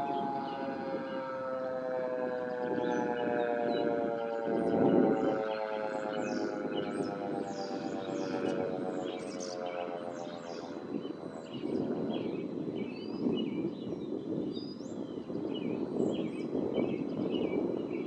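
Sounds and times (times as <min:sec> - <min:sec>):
siren tone falling: 0:00.0 - 0:12.0
birds chirping: 0:00.0 - 0:18.0.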